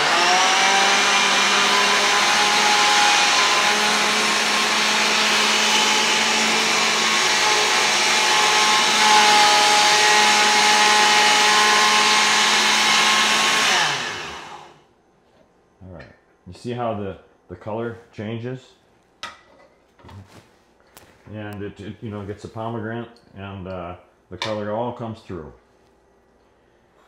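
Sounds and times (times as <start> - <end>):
blender motor running: 0.0 - 14.8.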